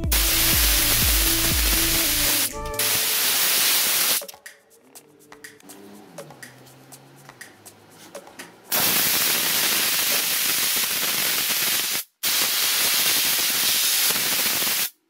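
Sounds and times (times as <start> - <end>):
steam cleaner hissing: 0.0 - 4.2, 8.7 - 15.0.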